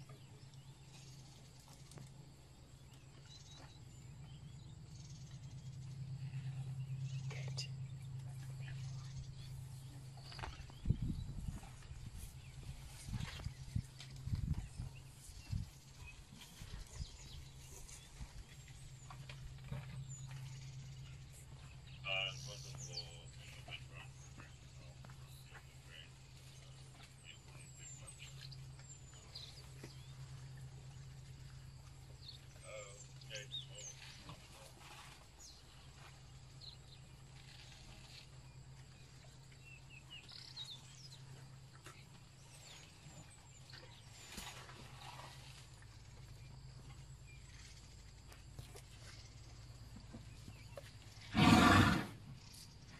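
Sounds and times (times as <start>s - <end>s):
vehicle engine idling: 0.0s - 10.8s
low steady hum: 0.0s - 51.3s
faint bird chirps: 3.1s - 11.8s
elephant feeding thuds and rustles: 8.3s - 21.8s, 28.7s - 32.5s, 33.5s - 51.3s
bird chirping: 14.4s - 44.5s.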